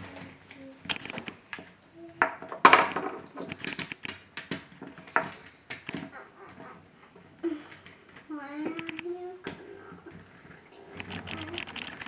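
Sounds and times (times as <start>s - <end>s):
wooden toy car clacking on table: 2.2s - 6.1s.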